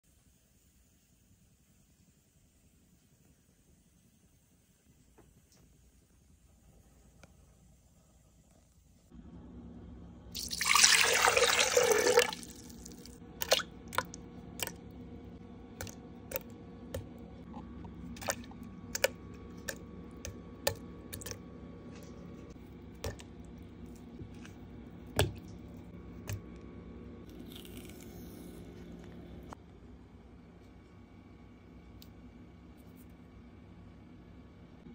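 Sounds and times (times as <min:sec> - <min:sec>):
liquid pouring into plastic jar: 0:10.4 - 0:14.8.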